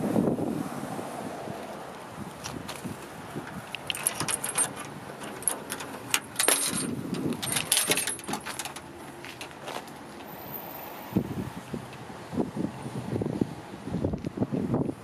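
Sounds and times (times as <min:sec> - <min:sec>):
metal tailgate hardware rattling: 0:03.6 - 0:10.0.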